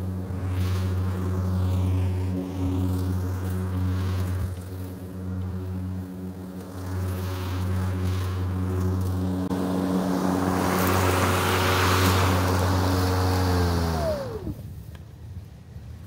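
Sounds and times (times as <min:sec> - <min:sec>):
electric lawn mower running: 0:00.0 - 0:14.8
mower spinning down whine: 0:00.0 - 0:15.0.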